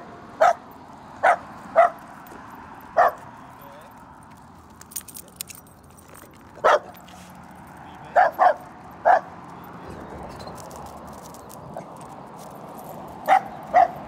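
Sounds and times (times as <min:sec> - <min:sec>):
dog barking: 0:00.4 - 0:00.6, 0:01.2 - 0:02.0, 0:03.0 - 0:03.3, 0:06.6 - 0:07.0, 0:08.1 - 0:09.4, 0:13.2 - 0:14.0.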